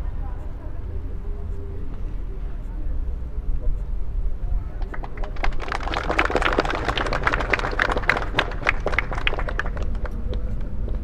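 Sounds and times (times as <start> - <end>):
low steady rumble: 0.0 - 11.0
group of people clapping: 4.8 - 11.0.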